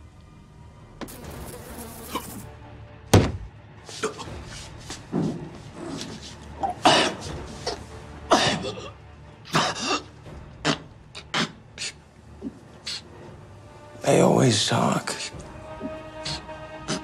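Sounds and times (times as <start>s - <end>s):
man coughing and grunting: 6.6s - 7.3s, 8.2s - 12.0s.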